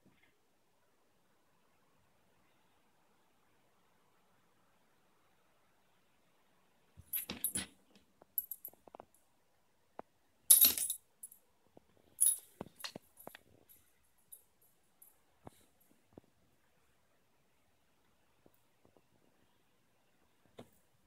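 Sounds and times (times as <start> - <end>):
dog collar tags jingling: 7.1 - 7.7, 8.4 - 8.8, 10.5 - 11.4, 12.2 - 14.4.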